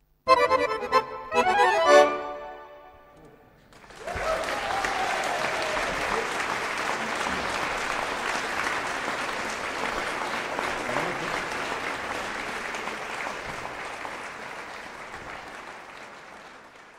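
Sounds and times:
audience applauding: 3.6s - 16.9s.

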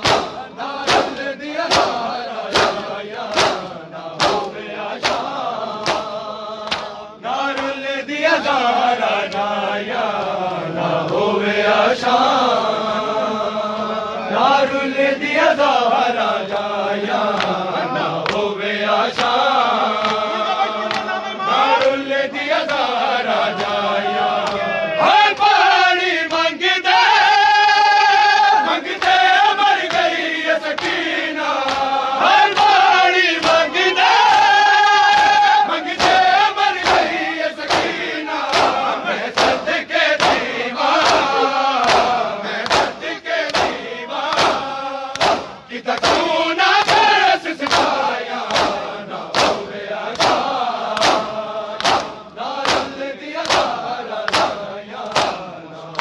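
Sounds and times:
chest slapping in unison: 0.0s - 7.8s, 18.2s - 20.3s, 29.8s - 34.5s, 35.1s - 56.0s
men singing a lament: 0.0s - 56.0s.

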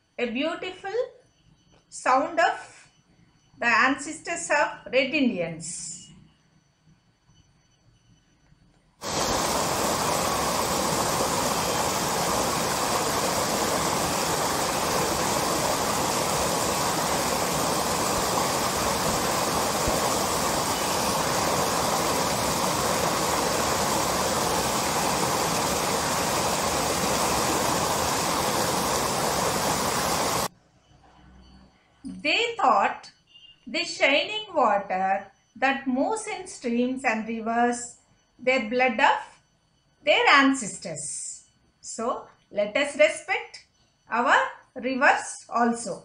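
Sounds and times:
stream rushing over rocks: 9.0s - 30.5s.

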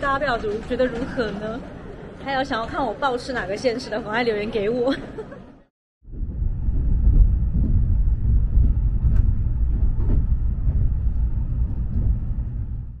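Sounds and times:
train wheels rumbling: 6.2s - 13.0s.

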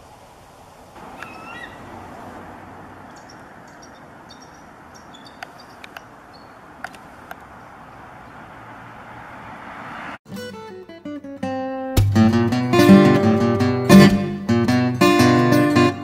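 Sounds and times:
background hiss: 0.0s - 9.0s
eagles calling: 1.0s - 8.8s
sharp clicks: 1.1s - 1.4s, 3.1s - 6.2s, 6.8s - 7.6s.

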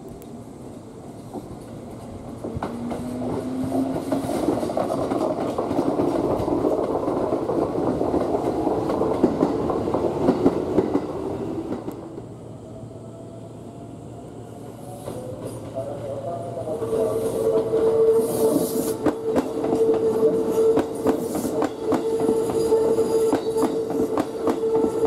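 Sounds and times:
train wheels rattling over rails: 0.6s - 12.3s, 17.2s - 25.0s.

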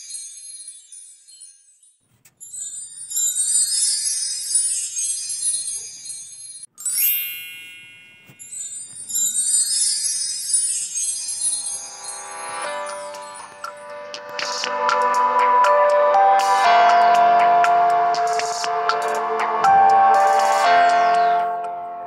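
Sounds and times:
high-pitched background music: 11.0s - 22.0s
rising sweep: 11.7s - 22.0s.

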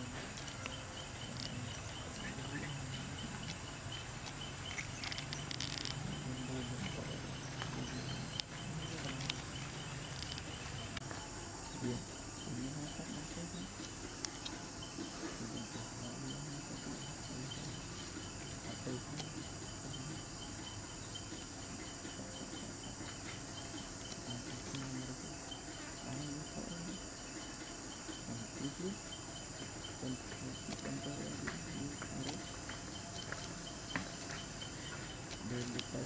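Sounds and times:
insects chirping: 0.0s - 36.0s
faint clicks and rustles: 0.2s - 11.3s.

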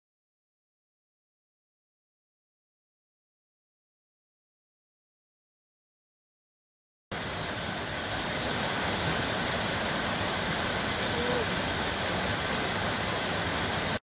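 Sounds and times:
stream cascading waterfall: 7.1s - 14.0s.

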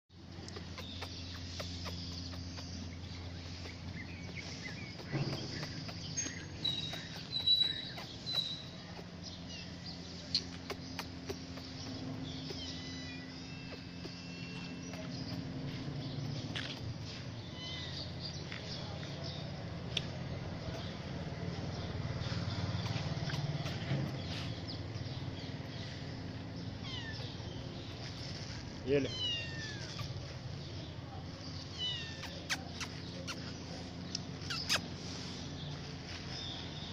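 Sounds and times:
street ambience: 0.1s - 36.9s
high steady chirps: 0.5s - 9.2s, 10.3s - 17.0s
kitten mewing: 0.5s - 9.2s, 10.5s - 15.4s, 22.8s - 24.4s, 26.7s - 28.2s, 29.1s - 30.2s, 31.7s - 33.5s, 34.4s - 34.9s.

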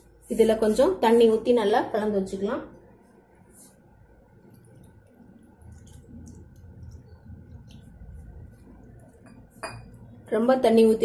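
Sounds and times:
paste squishing: 4.3s - 9.6s
water pouring into bowl: 4.5s - 9.4s.

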